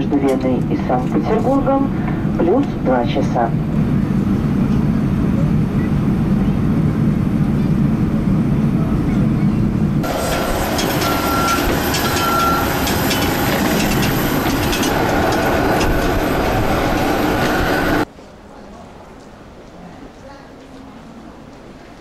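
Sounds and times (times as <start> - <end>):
airliner cabin rumble: 0.0 - 18.1
airport apron noise: 0.0 - 22.0
short beeps: 11.0 - 12.7.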